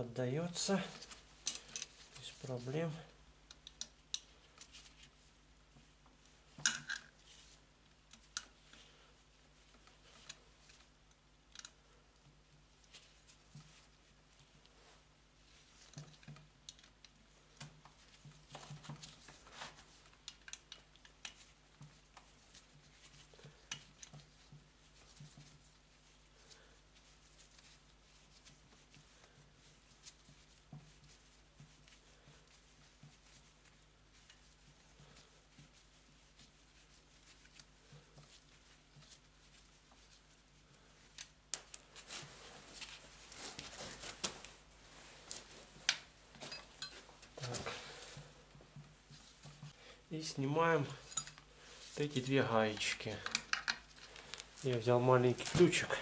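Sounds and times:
small tools clicking and scraping: 1.0s - 2.3s, 51.0s - 54.6s.

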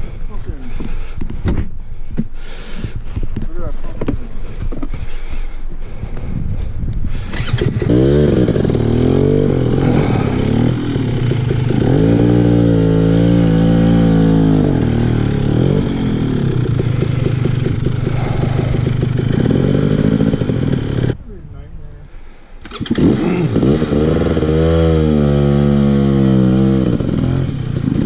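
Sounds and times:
dirt bike engine revving: 7.1s - 21.2s, 22.6s - 28.0s.

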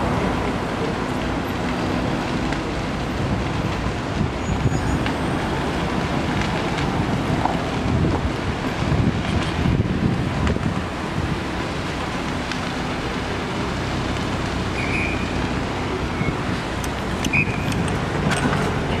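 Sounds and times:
car road and engine rumble: 0.0s - 19.0s
wind buffeting microphone: 2.0s - 12.5s.

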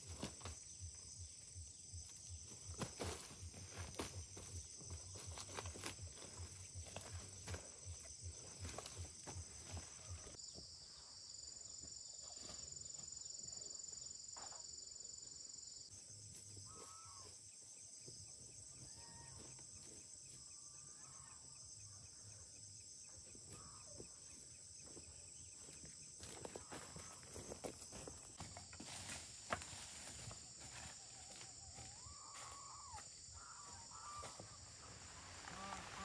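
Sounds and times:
insects trilling: 0.0s - 36.0s
faint footsteps: 2.0s - 10.4s, 23.5s - 36.0s
faint short animal calls: 16.6s - 17.4s.

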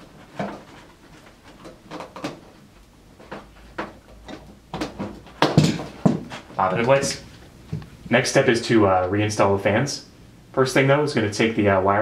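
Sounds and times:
handling clicks and knocks: 0.0s - 8.0s.

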